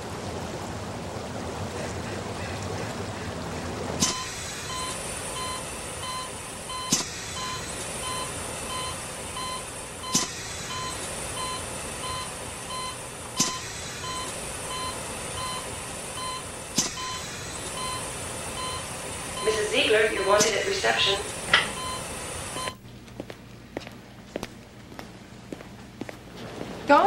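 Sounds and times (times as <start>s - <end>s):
ventilator air hiss: 4.0s - 22.7s
patient monitor beeping: 4.1s - 22.8s.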